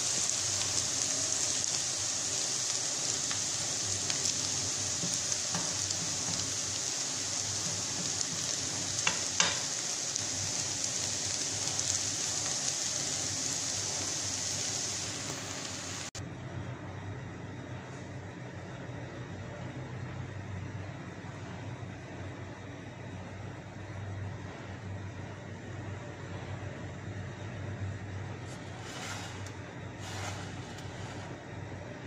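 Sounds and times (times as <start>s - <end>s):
noodles sizzling in frying pan: 0.0s - 16.2s, 28.4s - 31.5s
steady hiss: 0.0s - 16.2s
spoon tapping pan: 9.0s - 9.7s.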